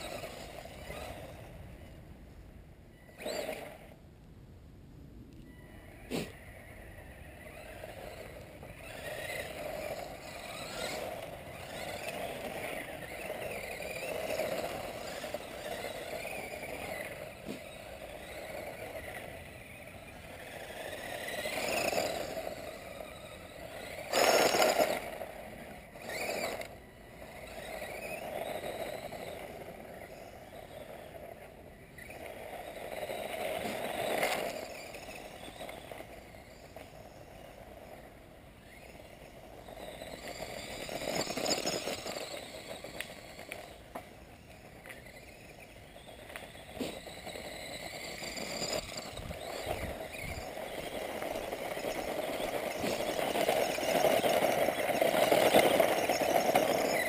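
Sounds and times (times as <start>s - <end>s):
electric motor whine: 0.0s - 2.0s, 2.9s - 4.0s, 5.4s - 57.0s
tyres crunching on gravel: 7.5s - 31.0s, 32.0s - 57.0s.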